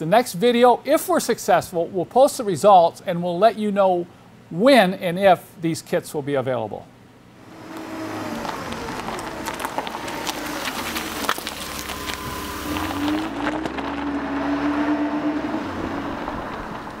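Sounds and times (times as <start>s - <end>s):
engine rumbling: 7.0s - 17.0s.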